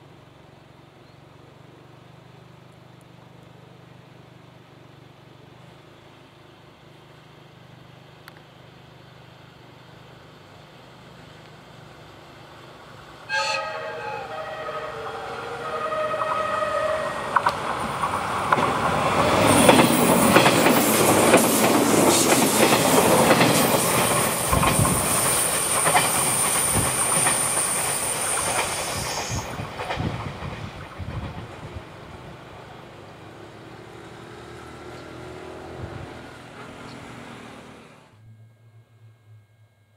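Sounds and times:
train horn: 13.3s - 17.8s
wheels clacking over rail joints: 16.1s - 32.1s.

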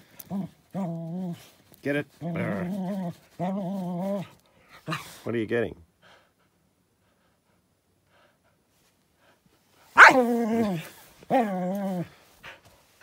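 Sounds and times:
dog barking: 10.0s - 10.3s.

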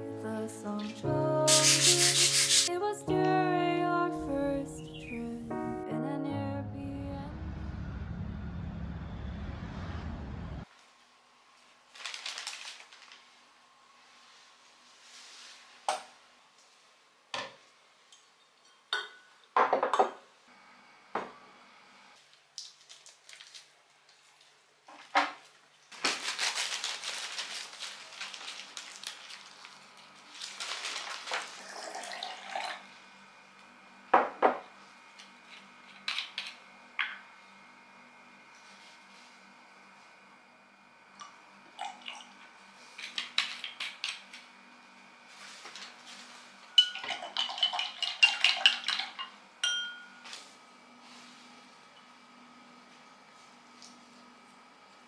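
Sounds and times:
newspaper crinkling and rustling: 11.8s - 13.4s, 22.3s - 24.6s, 25.9s - 31.7s.

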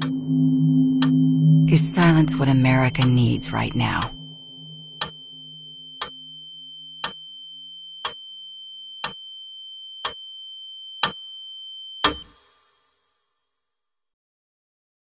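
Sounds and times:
steady high-pitched tone: 0.0s - 8.1s
clock ticking: 1.0s - 4.2s, 7.0s - 7.2s.

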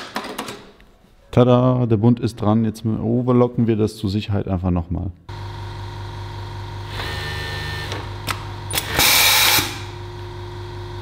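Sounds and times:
overlock machine motor hum: 5.3s - 11.0s
machine stitching: 6.9s - 9.9s.

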